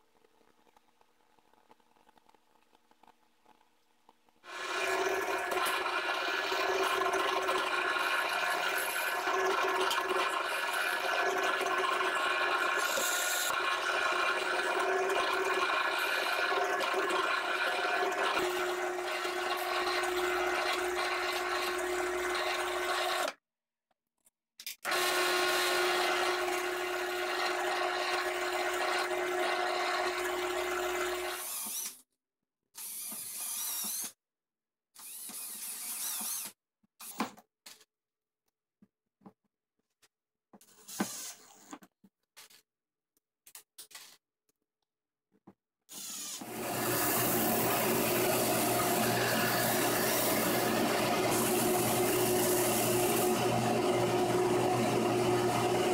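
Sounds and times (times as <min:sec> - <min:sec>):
drill press humming: 0:04.5 - 0:23.3, 0:24.9 - 0:31.8, 0:45.9 - 0:55.9
cordless drill drilling plastic: 0:04.5 - 0:23.4, 0:24.8 - 0:32.0, 0:32.8 - 0:34.2, 0:35.0 - 0:37.3, 0:40.7 - 0:41.7, 0:45.9 - 0:55.9.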